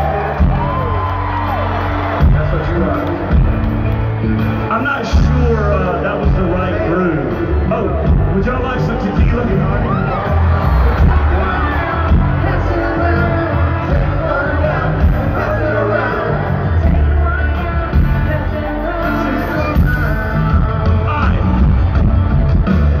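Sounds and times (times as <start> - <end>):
live band music: 0.0 - 23.0
person singing: 11.0 - 22.8.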